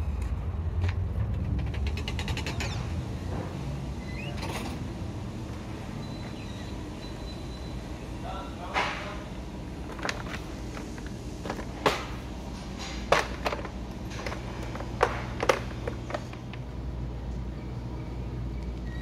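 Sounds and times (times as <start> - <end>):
steady low hum: 0.0 - 19.0
sharp clicks and knocks: 0.2 - 2.8.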